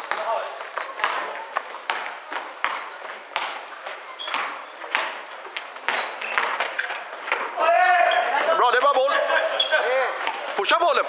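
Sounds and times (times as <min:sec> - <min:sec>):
basketball bouncing on hardwood: 0:00.0 - 0:07.5
sneakers squeaking on floor: 0:00.0 - 0:11.0.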